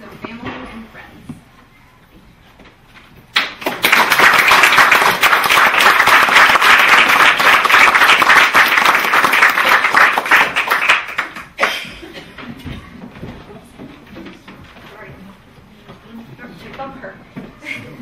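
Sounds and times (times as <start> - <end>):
audience applauding: 3.4 - 11.8.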